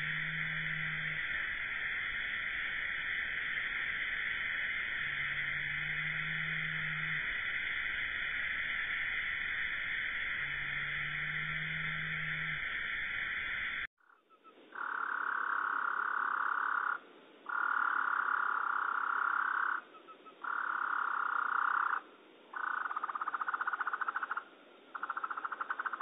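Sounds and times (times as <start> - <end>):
slowed bird song buzzing: 0.0 - 21.8.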